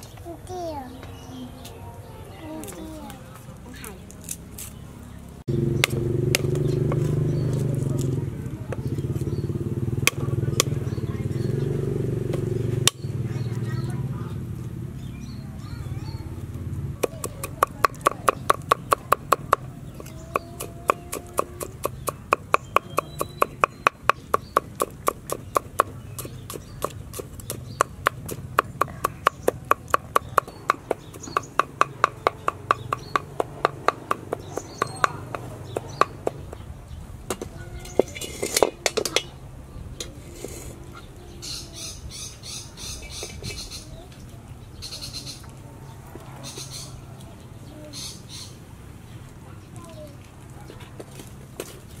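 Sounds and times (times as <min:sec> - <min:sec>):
cleaver chopping on wooden board: 0:17.0 - 0:36.6.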